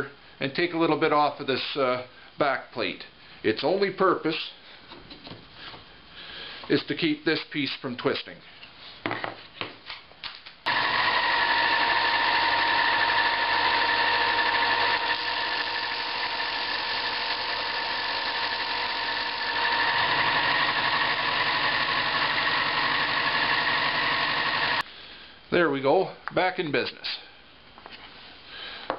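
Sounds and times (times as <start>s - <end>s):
belt sander whining: 10.7s - 24.8s.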